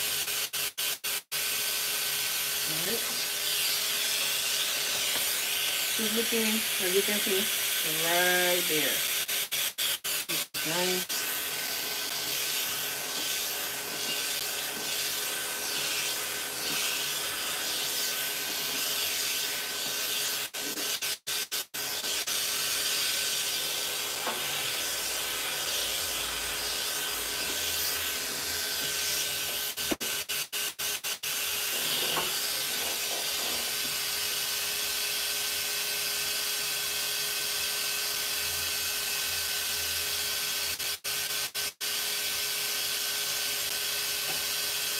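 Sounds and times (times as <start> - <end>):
pet dryer blowing air: 1.4 - 9.0, 10.3 - 20.9, 21.8 - 30.0.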